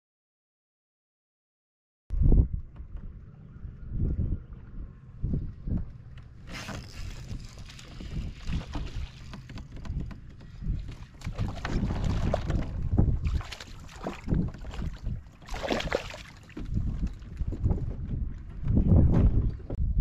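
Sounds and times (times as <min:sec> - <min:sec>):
wind on microphone: 0:02.1 - 0:20.0
water lapping and splashing: 0:06.4 - 0:18.6.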